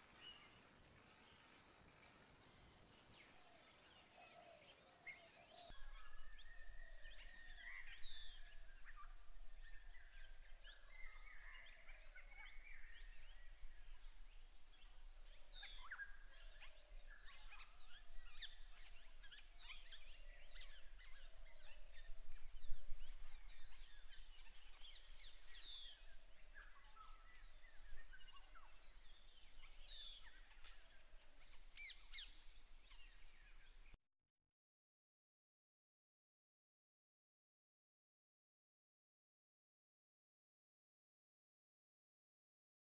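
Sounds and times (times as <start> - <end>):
birds chirping and whistling: 5.5 - 14.2, 15.5 - 30.8.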